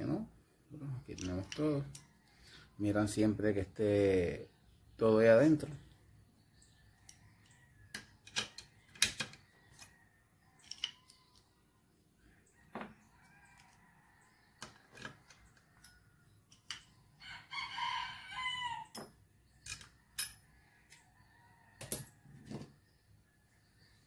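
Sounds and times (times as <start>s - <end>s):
rooster crowing: 17.2s - 19.0s.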